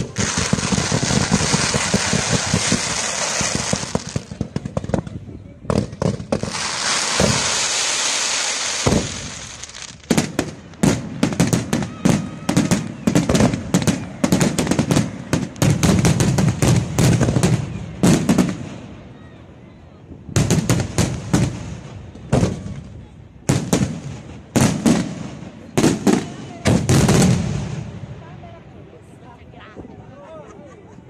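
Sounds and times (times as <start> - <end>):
sharp firework bangs: 0.0 - 5.1, 5.7 - 18.6
crackling firework hiss: 0.0 - 19.1.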